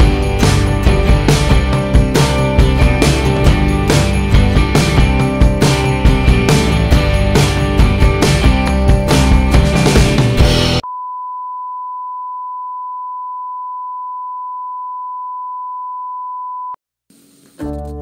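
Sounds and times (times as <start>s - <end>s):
music: 0.0s - 10.8s, 17.2s - 18.0s.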